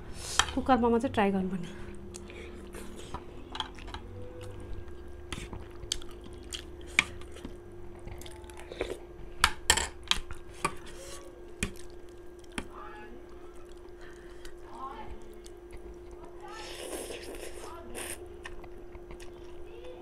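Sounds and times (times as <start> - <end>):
faint steady hum: 0.0 - 20.0
chewing food: 2.0 - 9.1, 11.6 - 14.6, 15.2 - 20.0.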